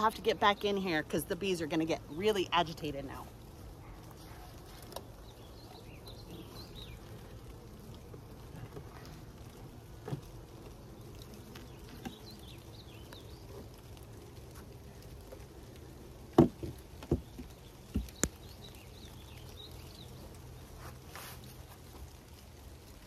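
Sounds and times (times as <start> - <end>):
light rain pattering: 0.0 - 23.0
wooden boxes knocking: 16.3 - 18.1.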